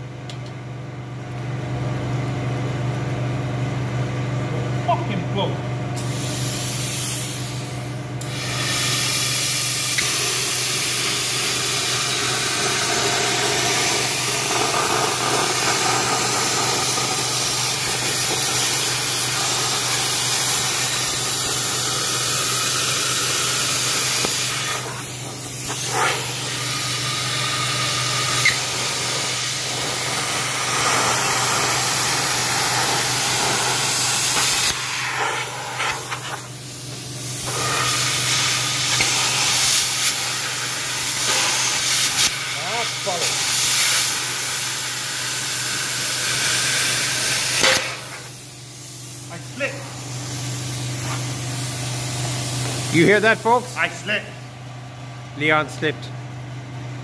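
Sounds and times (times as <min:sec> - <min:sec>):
plasma cutter hissing: 0:06.0 - 0:54.1
steady low hum: 0:09.4 - 0:43.3.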